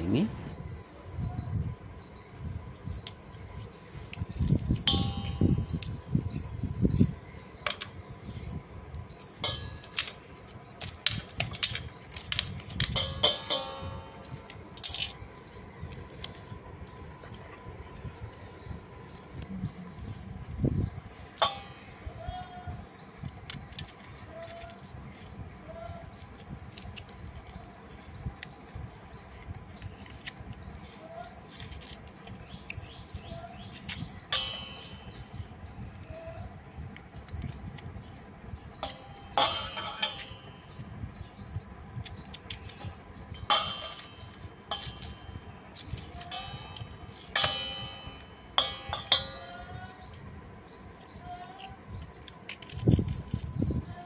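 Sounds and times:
knife clinking against steel bowl: 0:11.4 - 0:15.2, 0:34.3 - 0:35.2, 0:38.8 - 0:40.7, 0:42.7 - 0:50.0
knife scraping gourd: 0:26.2 - 0:37.9, 0:38.8 - 0:40.9, 0:42.0 - 0:49.9, 0:50.9 - 0:53.6.

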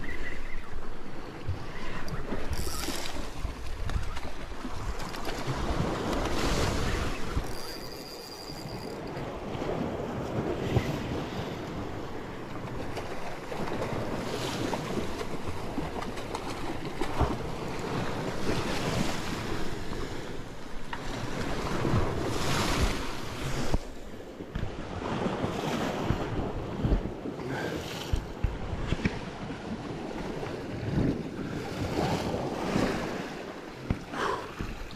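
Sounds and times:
waves splashing against rocks: 0:00.7 - 0:34.9
wind buffeting microphone: 0:21.3 - 0:34.9.

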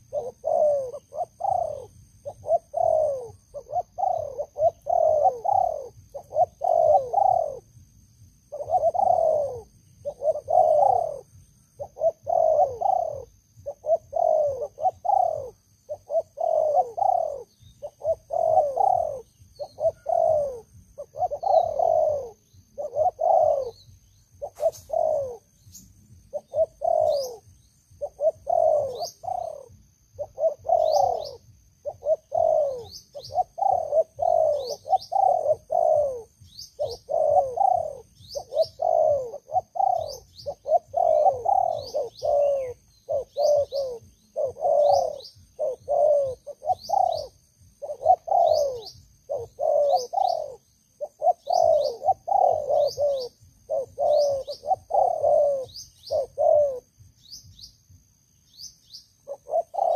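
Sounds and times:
doves cooing: 0:00.0 - 0:07.8, 0:08.4 - 0:57.4, 0:59.2 - 0:59.9
small bird chirping: 0:00.0 - 0:07.8, 0:08.4 - 0:59.9.

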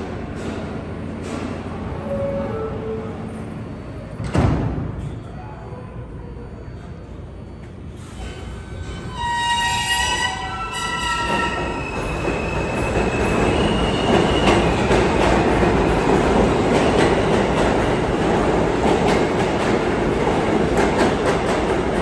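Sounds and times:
high train motor tone: 0:01.3 - 0:04.2
steel wheels rushing on rail: 0:10.0 - 0:22.0.

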